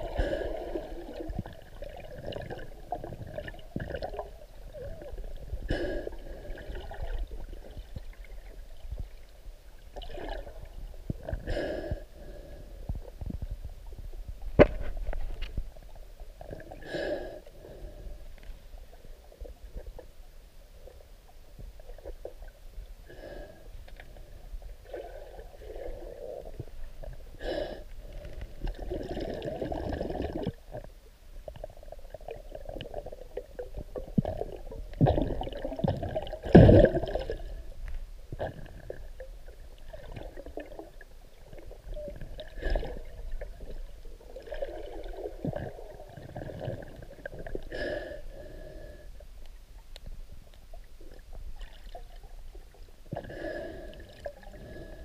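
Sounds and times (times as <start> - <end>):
muffled underwater sloshing: 0.0 - 55.0.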